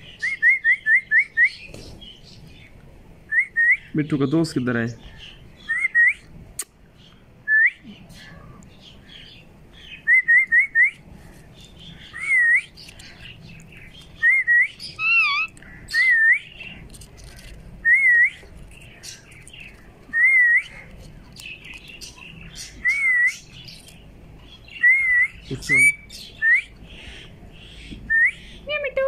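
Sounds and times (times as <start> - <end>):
parrot whistled chirps: 14.2 - 16.5.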